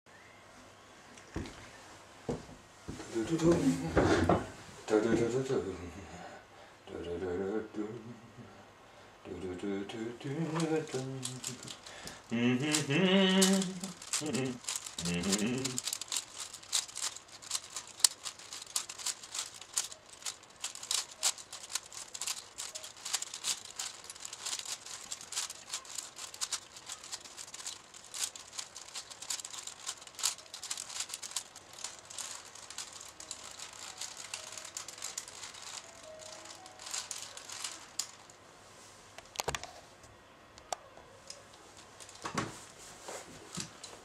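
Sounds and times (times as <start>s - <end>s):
puzzle cube clicking and rattling: 10.3s - 38.3s.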